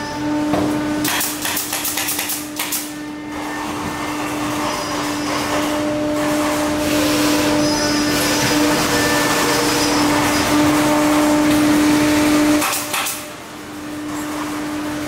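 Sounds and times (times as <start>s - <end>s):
machine hum: 0.0s - 15.0s
pneumatic stapler firing: 1.0s - 2.9s, 12.6s - 13.2s.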